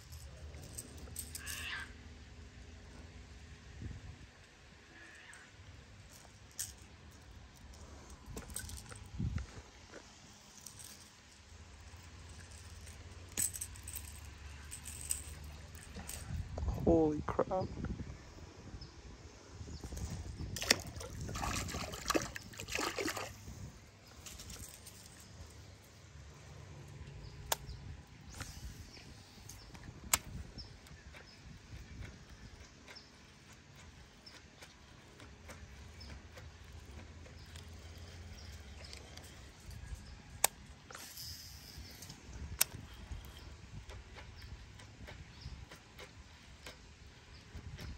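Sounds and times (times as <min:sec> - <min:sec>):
water sloshing and splashing: 0:20.5 - 0:24.6
fishing line hissing off spool: 0:40.9 - 0:42.2.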